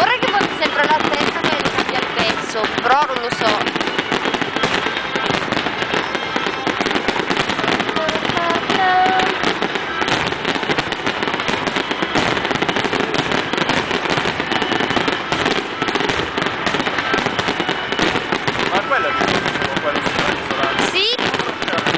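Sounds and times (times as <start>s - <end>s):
fireworks bangs and crackling: 0.0s - 21.9s.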